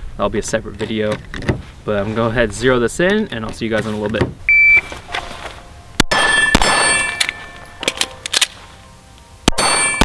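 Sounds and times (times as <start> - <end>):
long metallic ringing: 5.8 - 7.9
pistol shots: 6.0 - 8.5.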